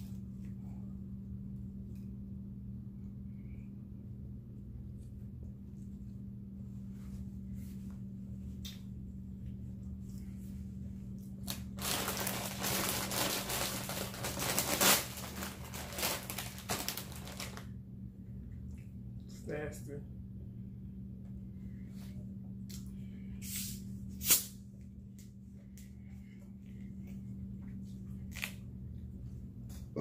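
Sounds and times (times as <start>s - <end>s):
steady low hum: 0.0s - 30.0s
plastic chip bag crinkling: 11.4s - 17.7s.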